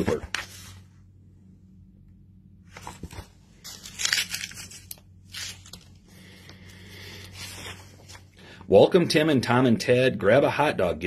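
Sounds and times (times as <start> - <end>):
paper rustling and crinkling: 0.0 - 0.8, 2.7 - 5.9, 7.2 - 8.3.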